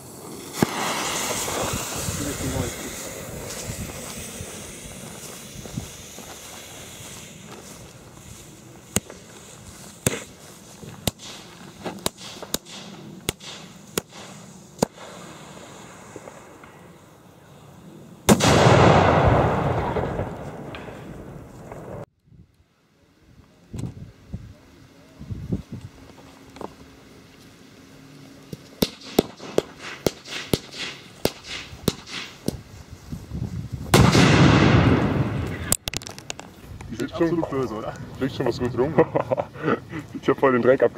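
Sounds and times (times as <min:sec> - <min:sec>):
firecracker-like cracks: 0:00.0 - 0:16.8, 0:18.2 - 0:22.1, 0:28.5 - 0:32.7, 0:33.8 - 0:36.6
fuse hissing: 0:00.0 - 0:18.3
running footsteps on grass: 0:03.4 - 0:12.5.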